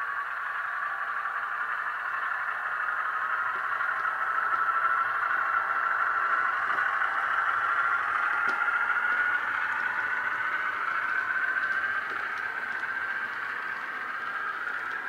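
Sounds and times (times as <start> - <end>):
diesel shunter engine from small speaker: 0.0 - 15.0.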